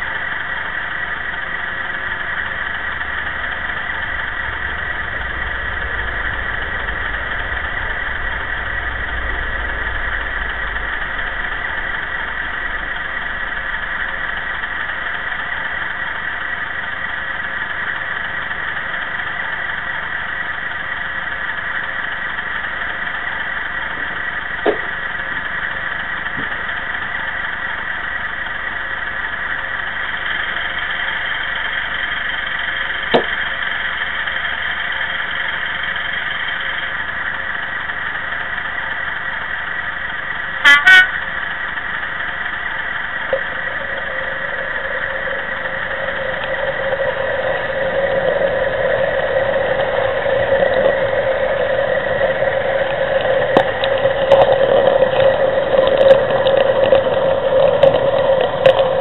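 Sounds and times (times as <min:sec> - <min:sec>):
diesel engine idling: 0:00.0 - 0:59.0
train horn: 0:40.6 - 0:41.3.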